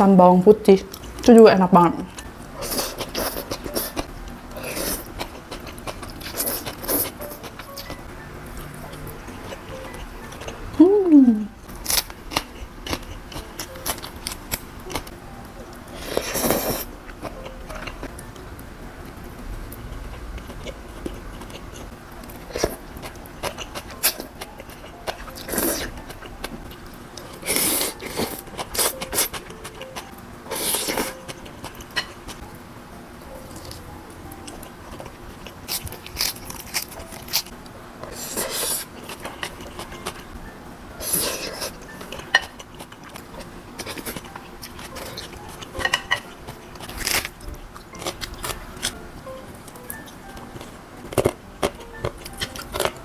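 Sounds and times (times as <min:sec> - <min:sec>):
close-up eating sounds: 0:02.0 - 0:18.4, 0:19.0 - 0:32.5, 0:33.2 - 0:53.0
person chewing noodles: 0:02.6 - 0:10.6, 0:11.8 - 0:15.1, 0:15.8 - 0:18.1, 0:19.7 - 0:26.6, 0:27.2 - 0:32.4, 0:34.4 - 0:40.2, 0:41.0 - 0:49.0.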